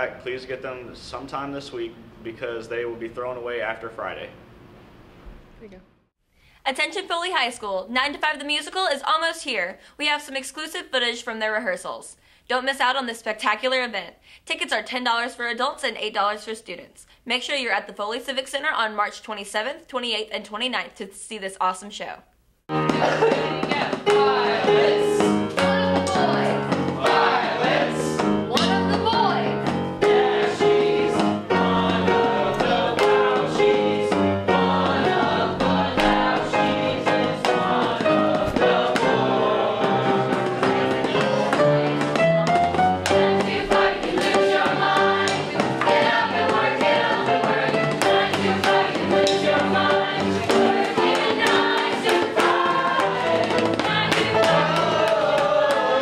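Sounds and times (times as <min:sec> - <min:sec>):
group singing show tune: 0:22.7 - 0:56.0
instrumental accompaniment: 0:22.7 - 0:56.0.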